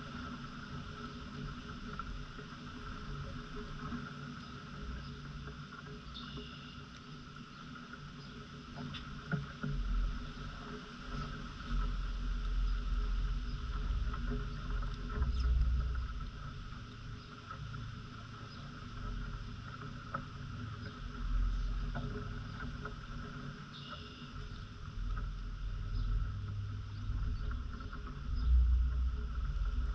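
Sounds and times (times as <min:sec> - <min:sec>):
faint ticks: 0:03.1 - 0:29.9
wind buffeting microphone: 0:24.4 - 0:29.9.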